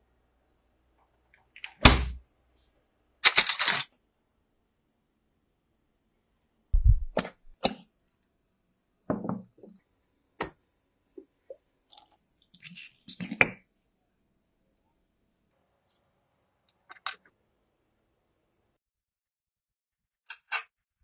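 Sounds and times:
low thump: 0:06.8 - 0:07.2.

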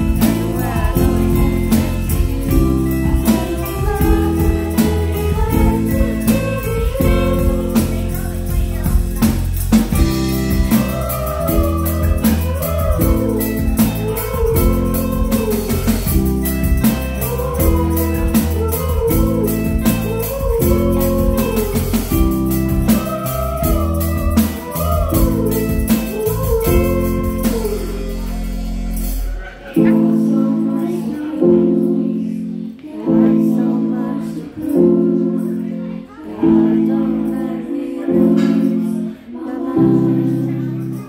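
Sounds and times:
live rock band playing: 0:00.0 - 0:37.6
pitch-bending lead melody: 0:00.0 - 0:40.8.

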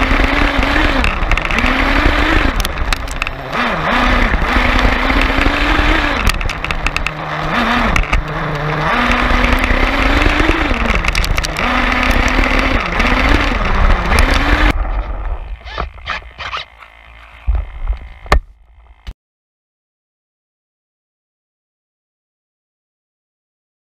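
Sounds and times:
toy truck motor whine: 0:00.0 - 0:19.2
clicks: 0:07.8 - 0:19.2.

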